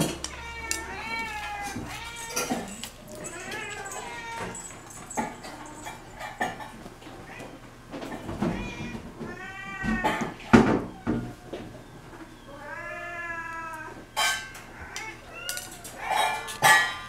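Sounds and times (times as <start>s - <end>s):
cat meowing: 0.0s - 6.0s, 8.4s - 11.7s, 12.4s - 14.0s, 14.6s - 16.8s.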